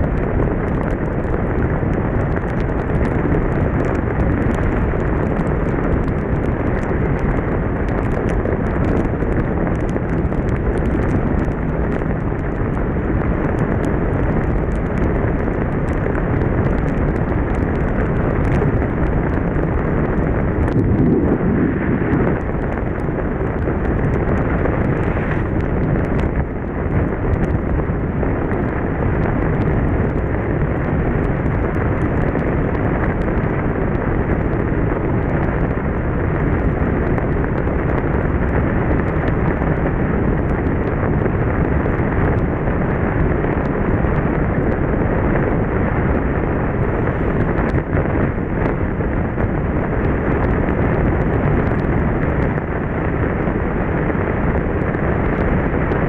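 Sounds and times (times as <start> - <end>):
raindrops ticking on microphone: 0.0 - 56.0
wind rush: 0.0 - 56.0
motorcycle road noise: 0.1 - 56.0.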